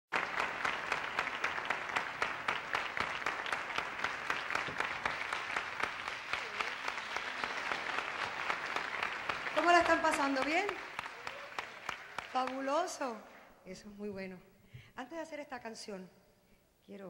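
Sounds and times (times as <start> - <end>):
audience applauding: 0.1 - 13.0.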